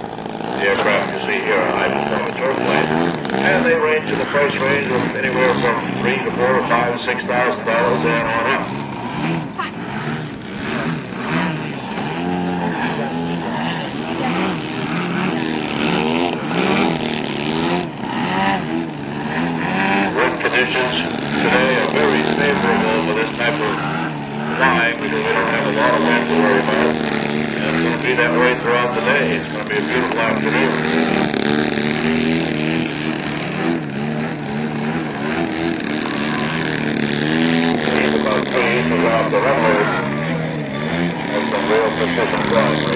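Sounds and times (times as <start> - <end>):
model airplane engine running: 0.0 - 42.9.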